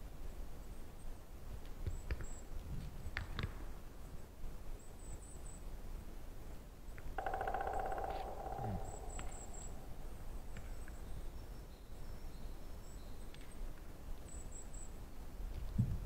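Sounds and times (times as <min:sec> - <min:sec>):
faint high chirps: 0:07.2 - 0:13.3.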